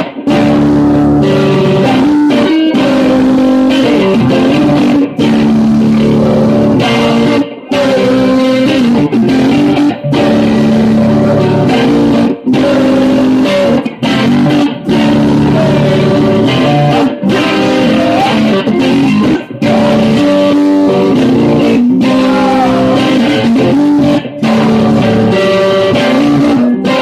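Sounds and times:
electric guitar strumming: 0:00.0 - 0:27.0
man singing: 0:06.0 - 0:27.0.

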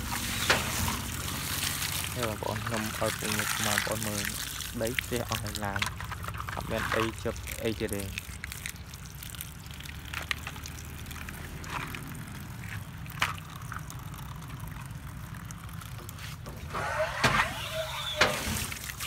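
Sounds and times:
rush of water-like noise: 0:16.2 - 0:19.0.

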